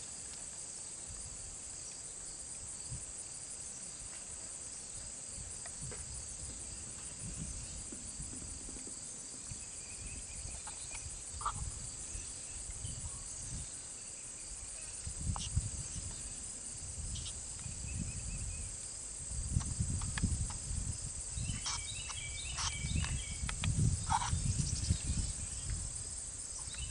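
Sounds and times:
high-pitched insect trilling: 9.4s - 26.9s.

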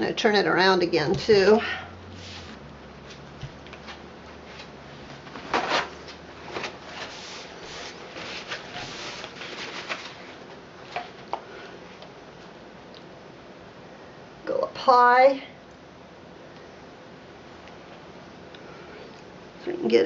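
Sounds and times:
plastic sheet rustling: 3.8s - 11.2s.

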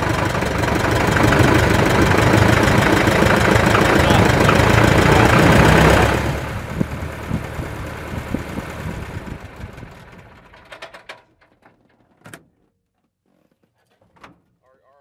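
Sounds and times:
small airplane engine running: 0.0s - 10.8s.

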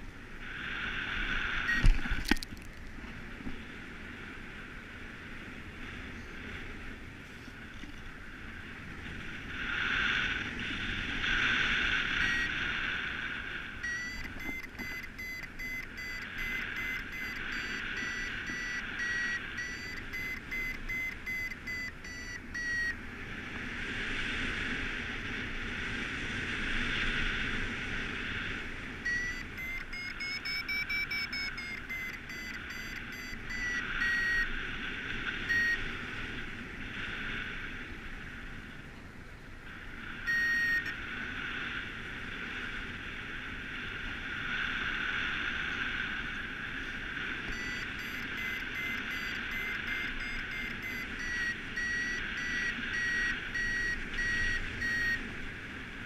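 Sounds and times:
variometer beeping: 1.6s - 2.4s, 12.0s - 12.6s, 13.8s - 23.0s, 29.0s - 34.6s, 35.2s - 35.9s, 40.2s - 41.0s, 47.4s - 55.3s.

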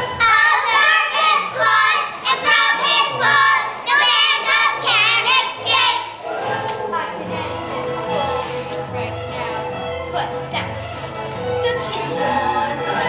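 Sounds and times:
children singing: 0.0s - 7.2s
instrumental accompaniment: 0.0s - 13.0s.

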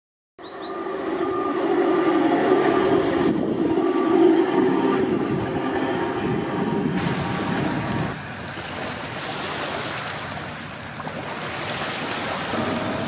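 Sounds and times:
wheels rumbling on rails: 0.4s - 9.2s, 12.1s - 13.0s.

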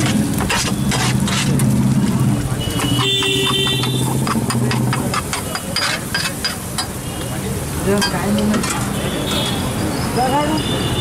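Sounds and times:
ladle scraping metal griddle: 0.0s - 6.9s.

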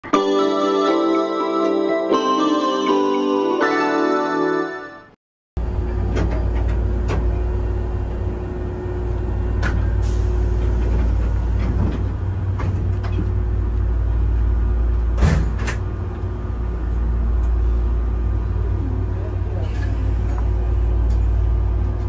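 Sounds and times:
low hum in train cab: 5.6s - 22.0s.

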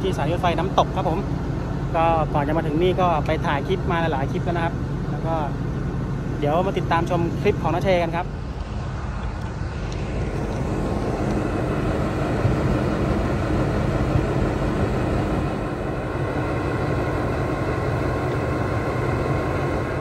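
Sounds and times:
diesel train rumbling: 0.0s - 20.0s.

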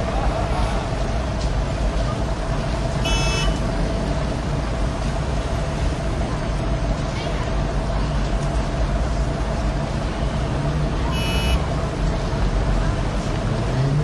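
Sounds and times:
city traffic rumble: 0.0s - 14.0s
high-pitched toot: 3.0s - 3.6s, 11.1s - 11.6s.

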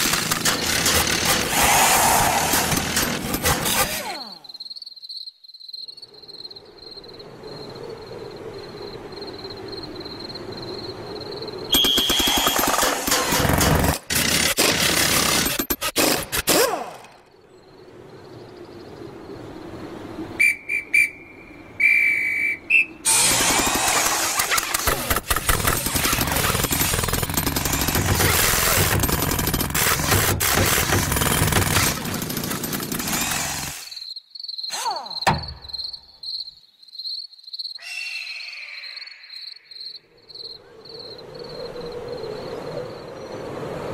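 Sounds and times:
insect chirping: 4.2s - 12.7s, 17.3s - 23.0s, 33.8s - 43.9s
short whistle blasts: 11.7s - 12.6s, 20.4s - 23.0s.

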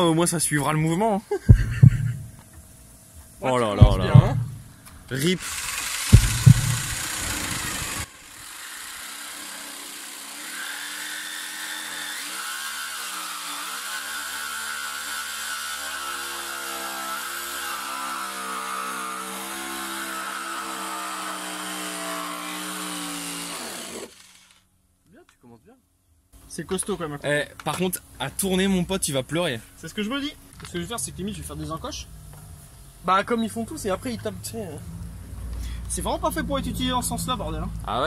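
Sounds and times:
reciprocating saw cutting steel: 5.2s - 24.6s
saw motor whine: 5.3s - 24.6s.

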